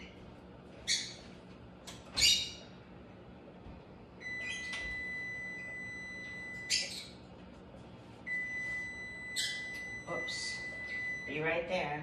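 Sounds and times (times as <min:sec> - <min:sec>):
oven timer beep: 0:04.2 - 0:07.2, 0:08.2 - 0:11.8.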